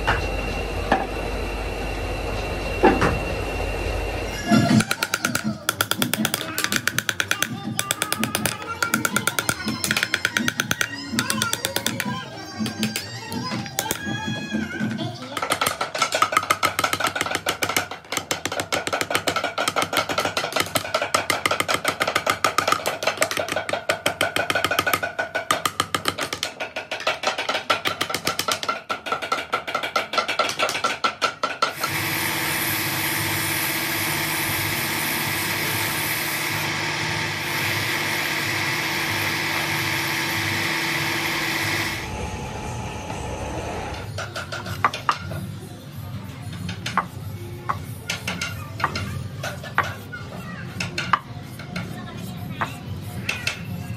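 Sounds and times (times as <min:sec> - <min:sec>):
hammer tapping chisel into wood: 0:04.8 - 0:13.0
wood lathe humming: 0:31.8 - 0:44.1.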